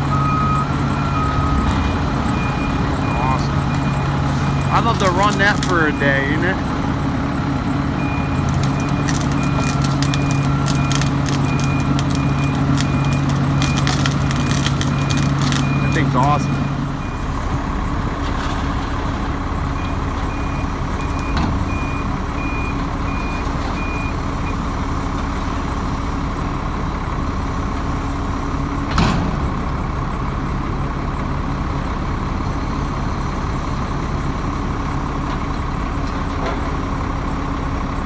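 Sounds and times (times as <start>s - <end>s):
backup alarm beeping: 0.0s - 18.0s, 19.4s - 24.6s
excavator diesel engine: 0.0s - 38.0s.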